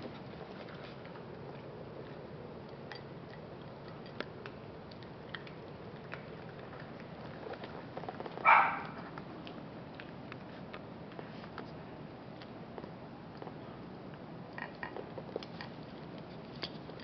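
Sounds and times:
dog crunching dry kibble: 0:00.0 - 0:11.7, 0:12.3 - 0:17.0
dog bark: 0:08.4 - 0:09.0.

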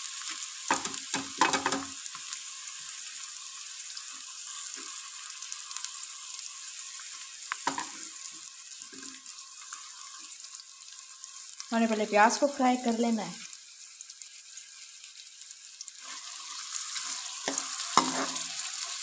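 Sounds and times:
onion sizzling in hot oil: 0:00.0 - 0:19.0
knocks against a pan: 0:00.7 - 0:02.0.

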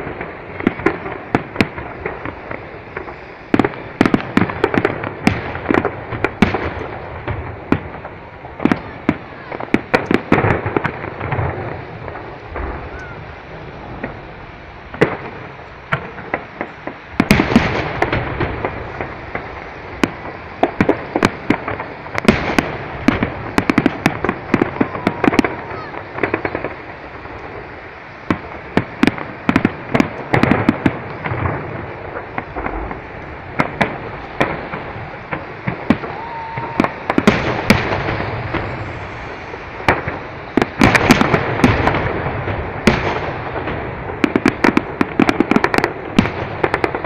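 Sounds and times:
fireworks bursting with bangs: 0:00.0 - 0:47.0
fireworks crackling: 0:00.0 - 0:47.0.

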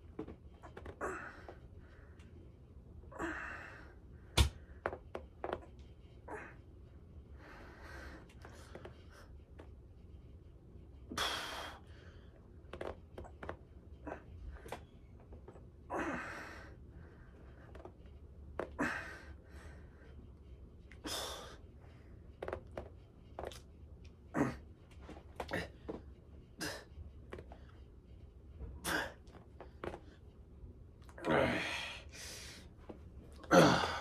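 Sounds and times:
man's effortful breaths: 0:33.5 - 0:34.0.

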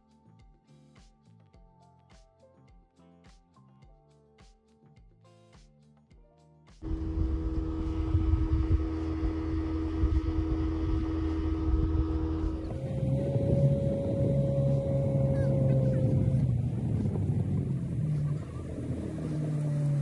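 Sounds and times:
outboard motor running: 0:06.8 - 0:20.0
wind on microphone: 0:06.8 - 0:20.0.

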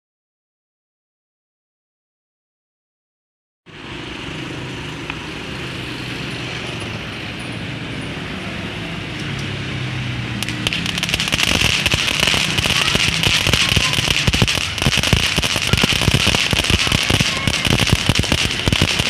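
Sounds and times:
firework fountain crackling: 0:10.3 - 0:19.0.

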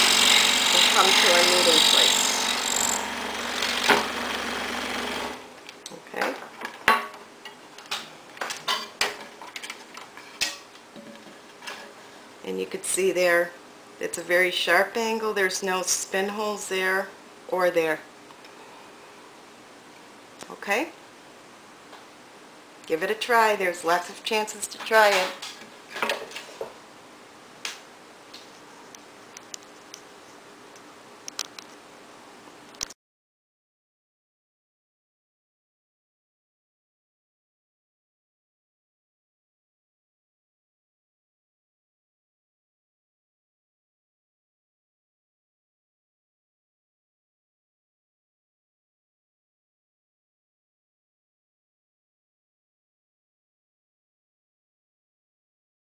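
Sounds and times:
scroll saw cutting wood: 0:00.0 - 0:05.5.

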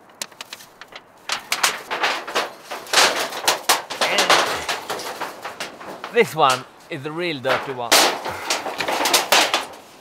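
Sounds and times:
sheet metal rattling and scraping: 0:00.0 - 0:10.0.

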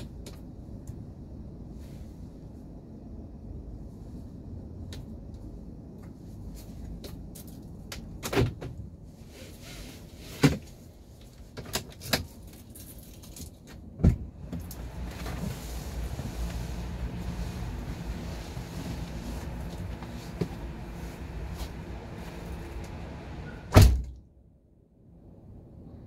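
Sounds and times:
car cabin clicks and clunks: 0:14.0 - 0:24.1
low rumble: 0:14.2 - 0:24.3.

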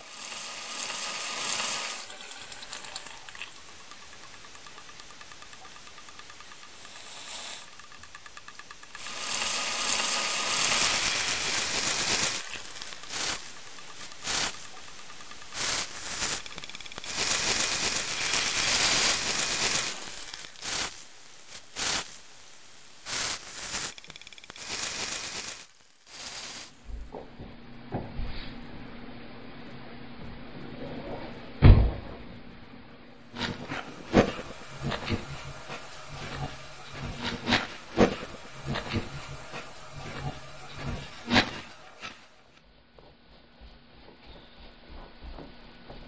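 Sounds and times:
loud hissing: 0:00.0 - 0:26.8, 0:33.3 - 0:42.3.

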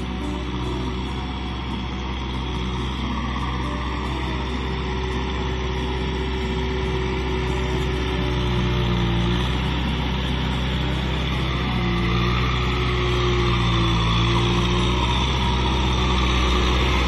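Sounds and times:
tractor diesel engine running: 0:00.0 - 0:17.0.

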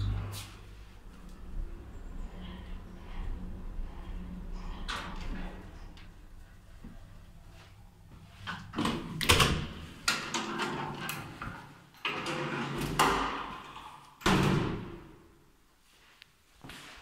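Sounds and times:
metal lift doors clunking and banging: 0:08.5 - 0:15.1.

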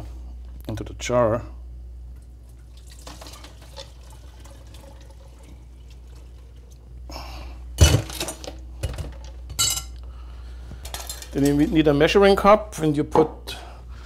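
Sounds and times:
liquid pouring stream: 0:02.6 - 0:07.0.

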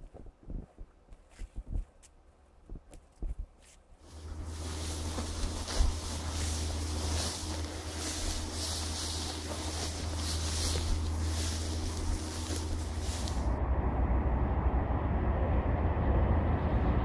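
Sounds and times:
footsteps through dry grass: 0:00.0 - 0:13.6
diesel locomotive rumbling: 0:04.0 - 0:17.0.

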